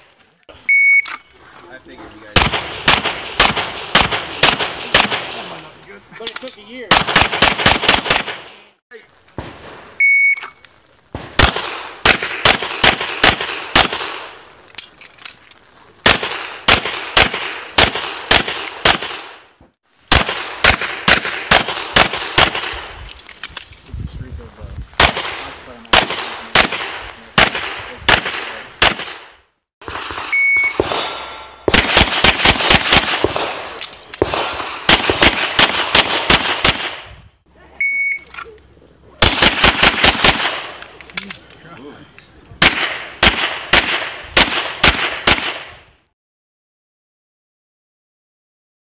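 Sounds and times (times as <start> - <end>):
shot timer beep: 0.7 - 1.3, 10.0 - 10.5, 30.3 - 30.8, 37.8 - 38.3
rapid handgun fire: 2.3 - 5.5, 6.9 - 8.6, 11.2 - 14.3, 16.0 - 19.4, 20.1 - 22.8, 25.0 - 37.1, 39.2 - 40.8, 42.6 - 45.8.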